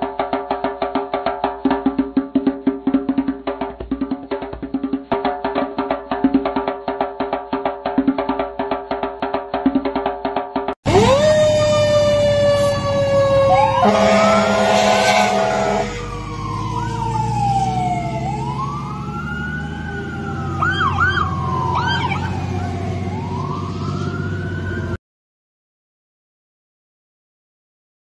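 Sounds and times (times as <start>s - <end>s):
fire engine siren wailing: 10.8s - 25.0s
fire truck air horn: 10.9s - 16.3s
siren chirps: 10.9s - 25.0s.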